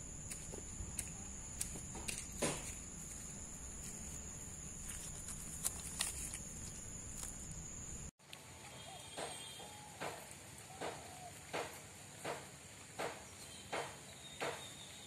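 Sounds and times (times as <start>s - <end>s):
high insect drone: 0.0s - 8.1s
broom scraping earthen ground: 1.8s - 7.6s.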